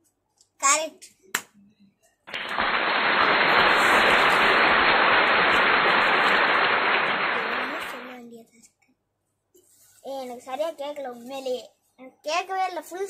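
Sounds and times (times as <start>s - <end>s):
applause: 2.3s - 8.1s.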